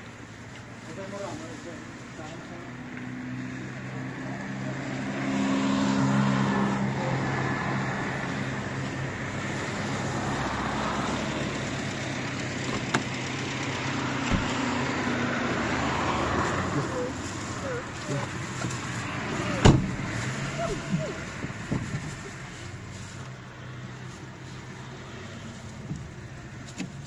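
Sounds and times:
vehicle engine running: 5.9s - 27.0s.

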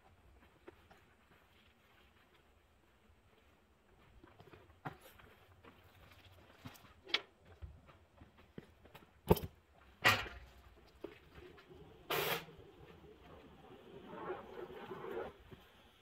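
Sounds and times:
sharp knocks and clanks: 9.3s - 10.6s
short burst of hiss: 12.1s - 12.5s.

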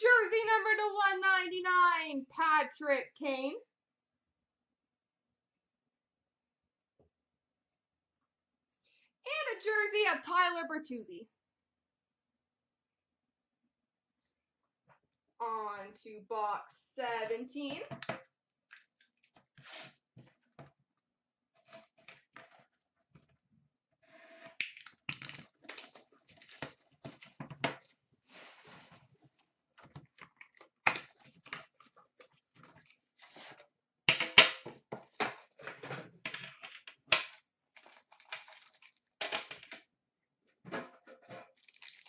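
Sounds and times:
clicks snaps and rustles: 24.6s - 27.9s.

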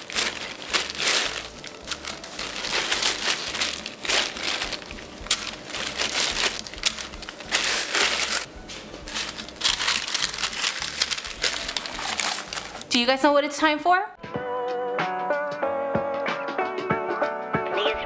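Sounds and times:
plastic glove crinkling: 0.0s - 13.0s
plastic wrap rustling: 0.0s - 13.0s.

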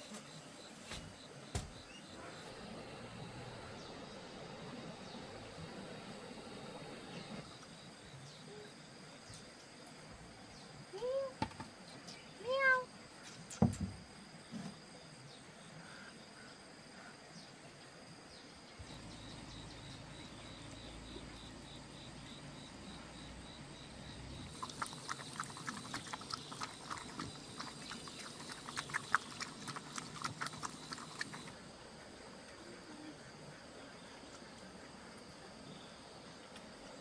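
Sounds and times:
dog chewing and lapping: 24.5s - 31.6s.

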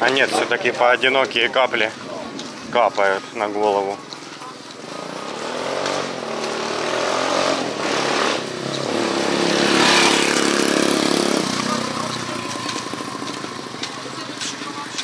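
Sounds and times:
small engine running: 9.2s - 15.0s.

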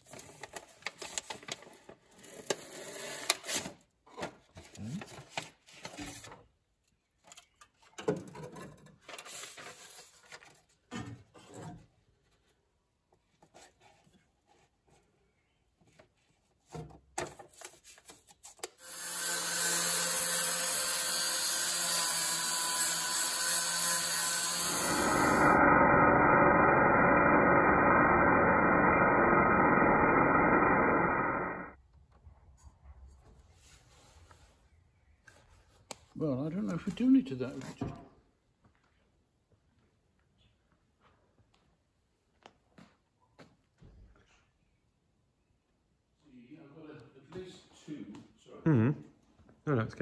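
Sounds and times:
angle grinder grinding steel: 18.8s - 31.7s.

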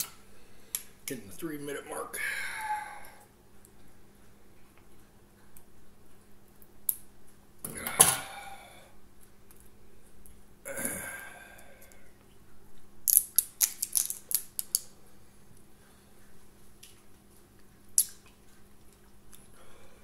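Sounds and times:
small objects clicking and tapping: 13.1s - 14.9s.

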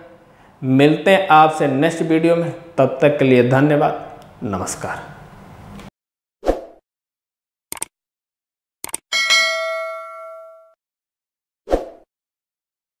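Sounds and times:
quick clicks: 7.7s - 7.9s, 8.8s - 9.0s
bright bell-like ding: 9.1s - 10.8s.

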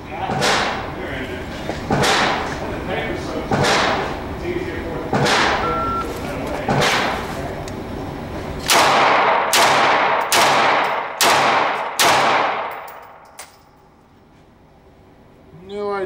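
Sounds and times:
pistol shots indoors: 0.3s - 0.8s, 1.9s - 2.5s, 3.5s - 4.1s, 5.1s - 5.6s, 6.7s - 7.2s, 8.6s - 13.7s.

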